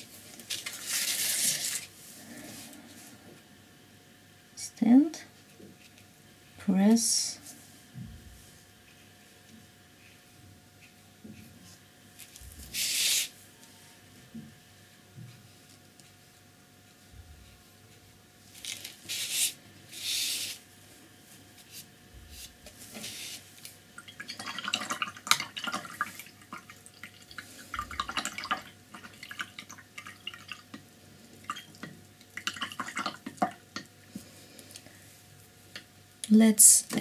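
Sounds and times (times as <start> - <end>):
water dripping: 24.0 - 30.8, 31.4 - 33.9.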